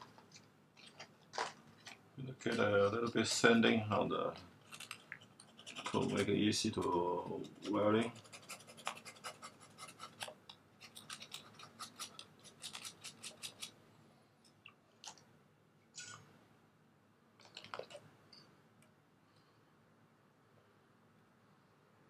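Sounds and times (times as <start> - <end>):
sandpaper scratching metal: 7.4 - 13.7.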